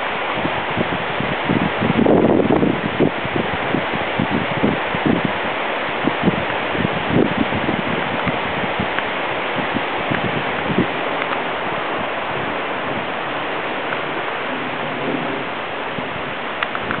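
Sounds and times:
flowing creek water: 0.0s - 17.0s.

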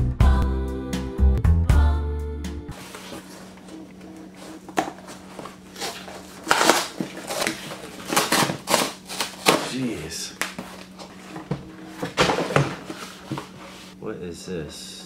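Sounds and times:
cardboard mailer being torn open: 4.8s - 9.9s.

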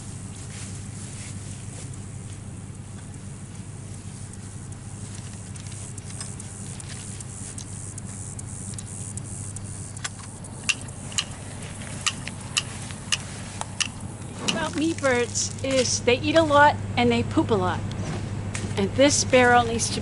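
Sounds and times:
steady low hum: 0.0s - 20.0s
chicken wire clicks: 10.0s - 11.4s.

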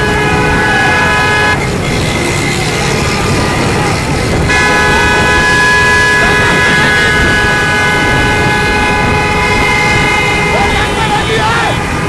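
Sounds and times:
people shouting: 0.0s - 1.6s, 9.1s - 12.0s
motorcycle and car engines running: 0.0s - 12.0s
multi-tone vehicle horn: 0.0s - 12.0s.

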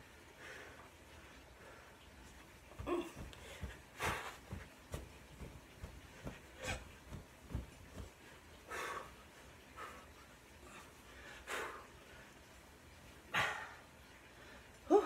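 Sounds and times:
heavy breathing: 2.8s - 5.1s
feet thumping on carpet: 2.8s - 8.3s.

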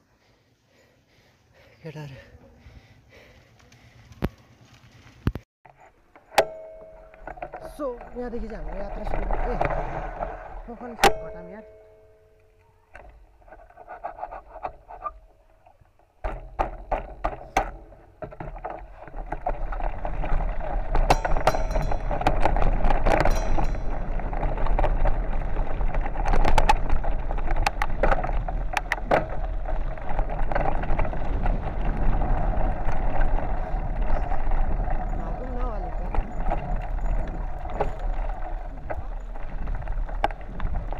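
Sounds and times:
bike rattling over bumps: 3.0s - 40.9s
bicycle tyres crunching on gravel: 3.1s - 5.4s, 6.8s - 11.8s, 16.1s - 40.9s
wind buffeting microphone: 19.7s - 40.9s.

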